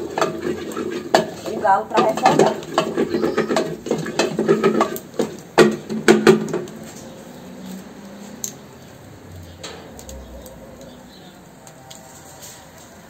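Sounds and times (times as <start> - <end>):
spoon clanking on metal pot: 0.0 - 6.7
faint steady background noise: 0.0 - 13.0.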